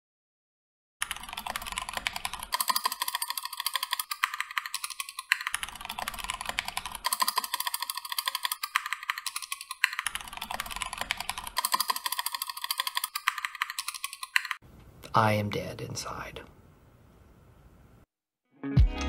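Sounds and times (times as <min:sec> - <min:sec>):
mechanical keyboard typing: 0:01.0 - 0:14.6.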